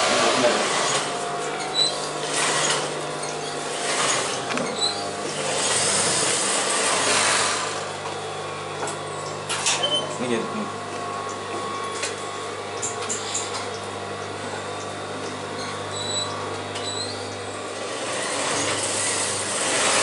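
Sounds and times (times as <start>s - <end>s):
whirring stitching: 0.0s - 7.9s, 15.5s - 20.0s
sewing machine motor hum: 0.0s - 20.0s.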